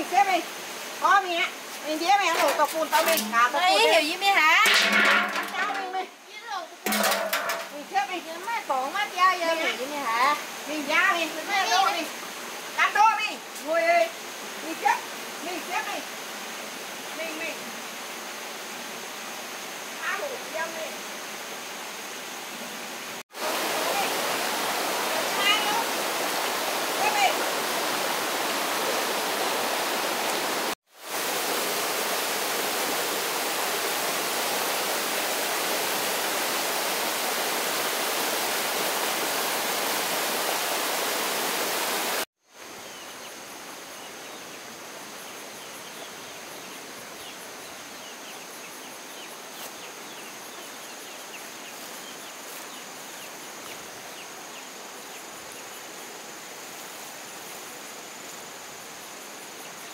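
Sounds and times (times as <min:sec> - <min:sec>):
insect trill: 0:00.0 - 0:28.2, 0:42.4 - 0:59.9
water rushing: 0:00.0 - 0:59.9.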